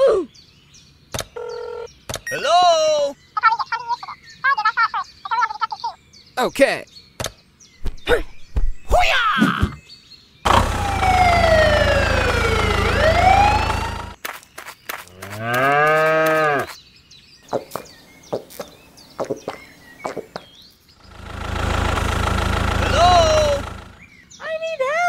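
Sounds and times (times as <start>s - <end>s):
tractor engine with whistling tone: 10.5s - 14.2s, 21.0s - 24.1s
cow mooing: 15.3s - 16.7s.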